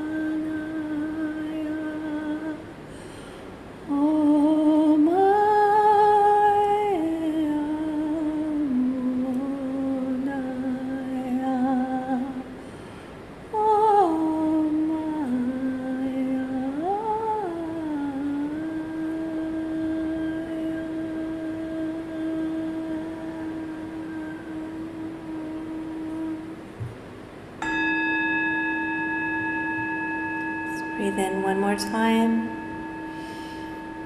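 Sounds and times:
woman humming: 13.6s - 26.6s.

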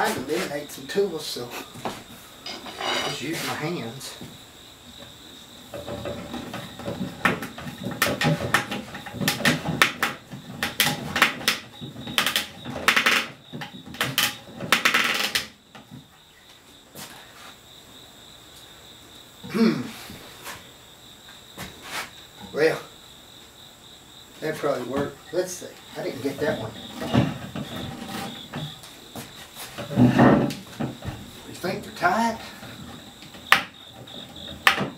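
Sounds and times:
high insect trill: 0.0s - 34.9s
wooden chair spindles squeaking: 2.4s - 3.8s, 5.7s - 16.1s, 24.5s - 34.9s.

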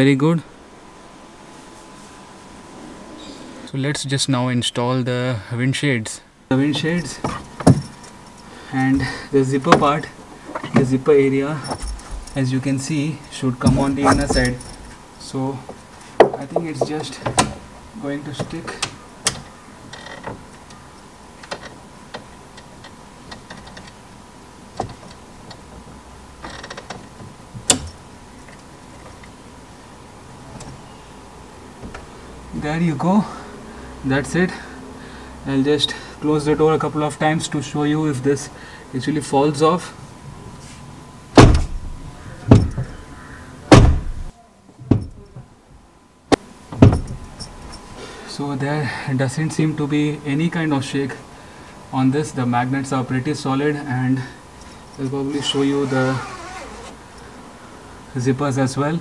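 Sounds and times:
faint high hum: 0.0s - 59.0s
short rattle: 11.6s - 12.5s, 13.2s - 15.1s
car door slamming: 41.4s - 42.9s, 43.7s - 44.3s, 44.9s - 45.2s, 46.7s - 47.2s.

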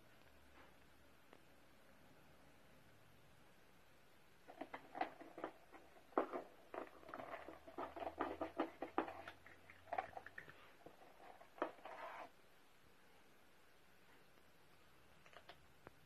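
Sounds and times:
cats scratching cardboard: 4.5s - 12.4s.

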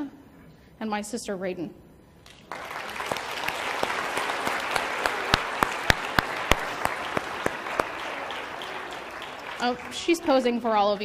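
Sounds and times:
loud claps close by: 2.2s - 11.0s
audience applauding: 2.3s - 11.0s.

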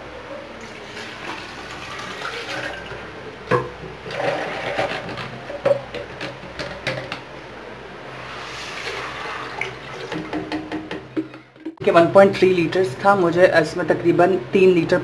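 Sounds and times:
water sloshing into a bowl: 0.6s - 7.1s.

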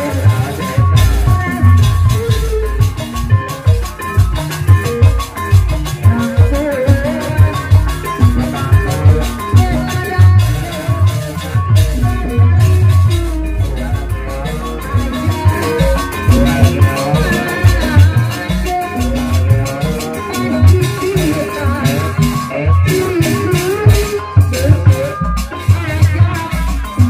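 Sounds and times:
woman singing: 0.0s - 3.4s, 5.8s - 27.0s
hand drums beating: 0.0s - 27.0s
melody instruments: 0.0s - 27.0s.

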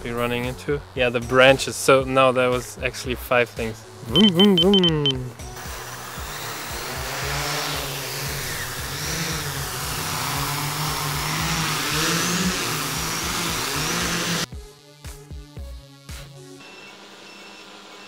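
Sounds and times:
drone motors whining: 5.6s - 14.5s, 16.6s - 18.0s.

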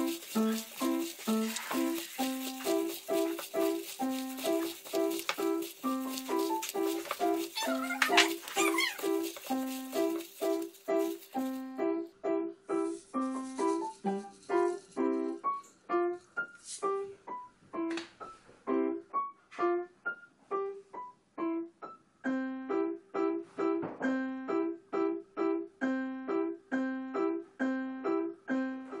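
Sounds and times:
light keyboard tune: 0.0s - 16.2s.

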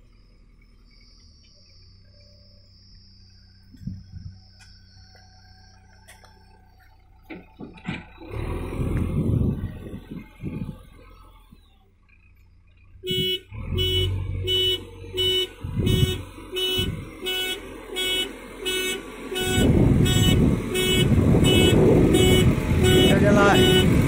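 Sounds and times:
diesel engine: 0.0s - 24.0s
reversing alarm beeping: 13.0s - 24.0s.

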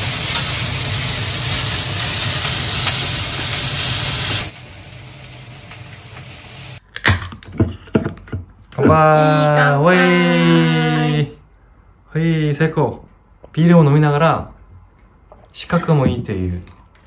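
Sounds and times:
noodles sizzling in frying pan: 0.0s - 6.8s.

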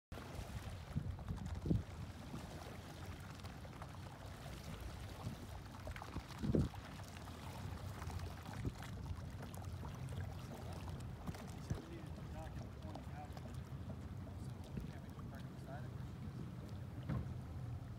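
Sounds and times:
water sounds: 0.1s - 17.9s
wind buffeting microphone: 0.8s - 2.5s, 4.7s - 6.8s
motorboat idling: 7.0s - 17.9s.

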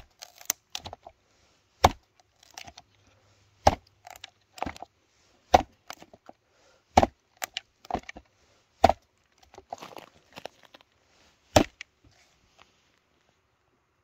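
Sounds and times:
machete chopping wood: 0.0s - 1.1s, 1.8s - 2.8s, 3.6s - 4.9s, 5.5s - 6.1s, 6.9s - 8.2s, 8.8s - 9.1s, 11.5s - 11.8s
wood splintering: 0.0s - 1.1s, 1.8s - 2.8s, 3.6s - 4.9s, 5.5s - 6.2s, 6.9s - 10.8s, 11.5s - 11.8s.

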